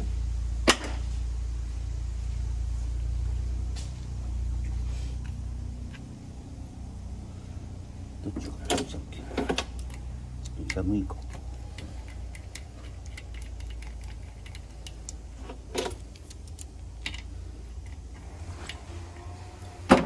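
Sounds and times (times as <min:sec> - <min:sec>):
steady low hum: 0:00.0 - 0:20.0
metallic clicks and rattles of hose: 0:08.4 - 0:19.8.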